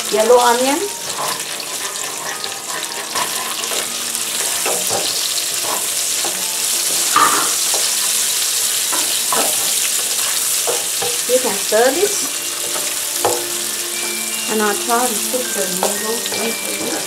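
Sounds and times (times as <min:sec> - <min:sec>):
ginger and onion sizzling in oil: 0:00.0 - 0:17.0
spatula scraping pan: 0:00.3 - 0:17.0.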